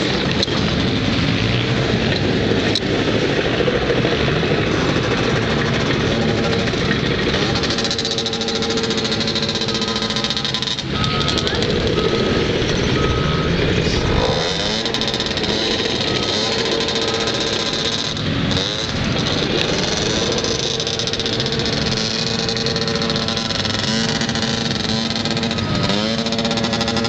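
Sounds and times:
atv engine revving: 0:00.0 - 0:27.0.

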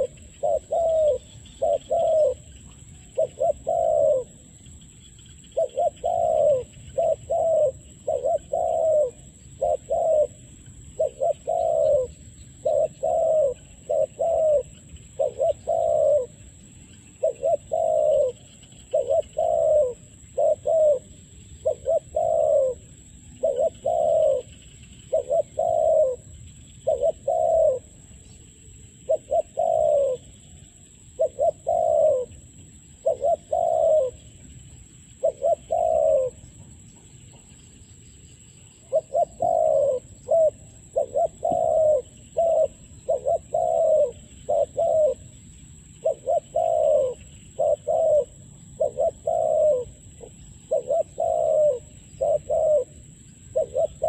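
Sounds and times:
dove cooing: 0:00.0 - 0:28.4, 0:29.0 - 0:37.6, 0:38.6 - 0:45.4, 0:46.0 - 0:54.0
faint high-pitched whine: 0:00.0 - 0:54.0.

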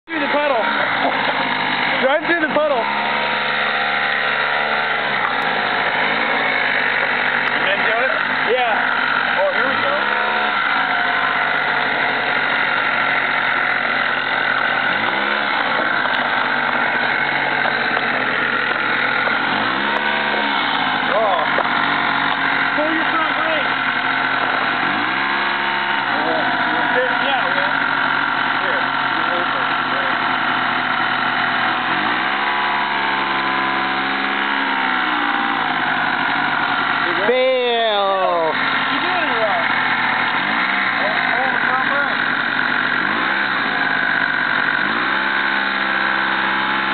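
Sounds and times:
scooter engine revving high: 0:00.0 - 0:46.9.

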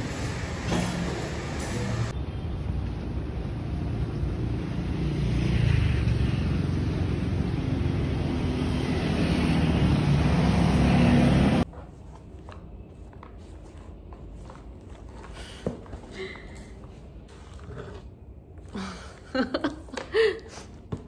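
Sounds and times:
road traffic noise: 0:00.0 - 0:11.7.

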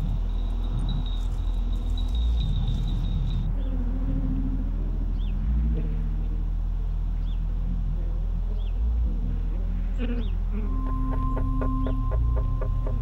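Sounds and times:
low droning soundtrack: 0:00.0 - 0:13.0
deep pulse: 0:10.5 - 0:13.0.

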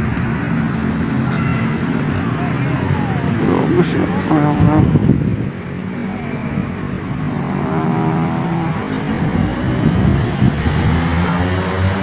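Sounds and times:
low engine hum: 0:02.2 - 0:11.8.

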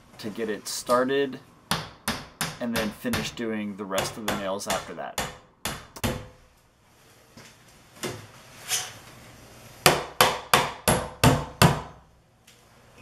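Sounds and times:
hammer striking nails into wood: 0:01.7 - 0:03.4, 0:04.0 - 0:06.4, 0:09.8 - 0:12.0.

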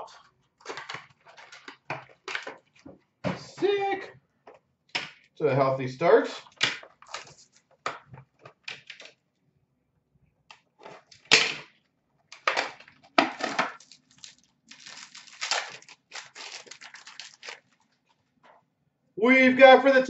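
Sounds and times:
cardboard rustling: 0:13.3 - 0:18.1
wrapper crinkling: 0:13.4 - 0:18.2.

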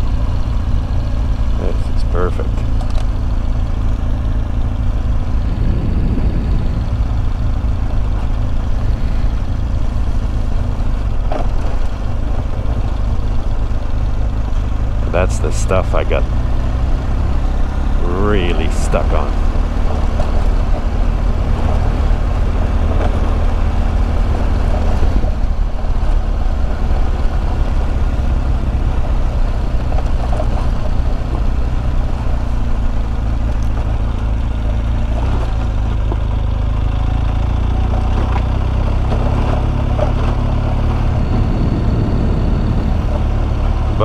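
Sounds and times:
motorcycle engine drone: 0:00.0 - 0:44.0
tyres rumbling on dirt: 0:00.0 - 0:44.0
rushing air: 0:05.2 - 0:09.6.

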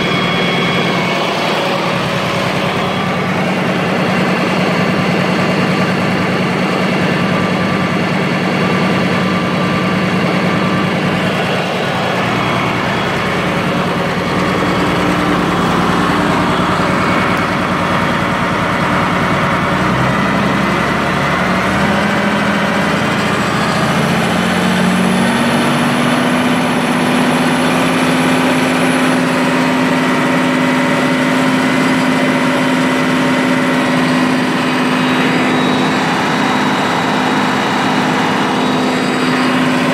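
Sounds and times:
diesel tractor engine running: 0:00.0 - 0:39.9.

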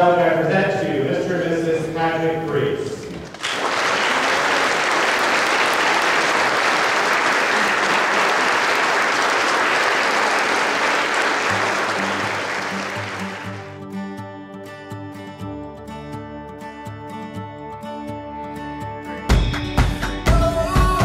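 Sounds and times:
congregation applauding: 0:03.0 - 0:13.8
music: 0:11.1 - 0:21.0.

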